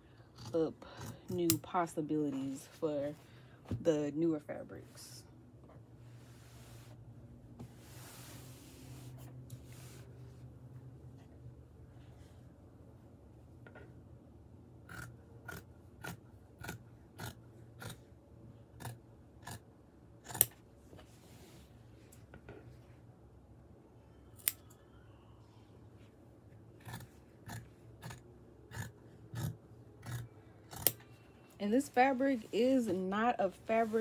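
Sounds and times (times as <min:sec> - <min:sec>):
fabric shears snipping: 0:20.2 - 0:20.7, 0:29.4 - 0:31.0.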